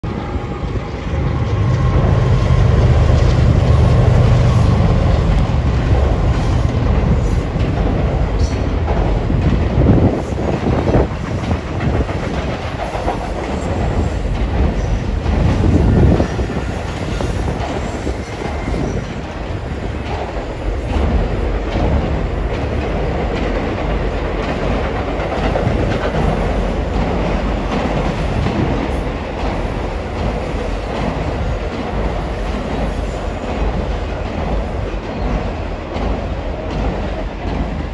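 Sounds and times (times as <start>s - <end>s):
freight train rumbling over bridge: 0.0s - 37.9s.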